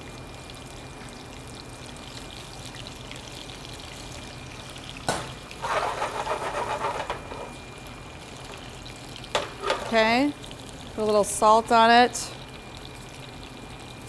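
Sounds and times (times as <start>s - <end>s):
shrimp sizzling in oil: 1.0s - 14.0s
steel bowl clanking down: 5.6s - 7.6s, 9.4s - 10.1s.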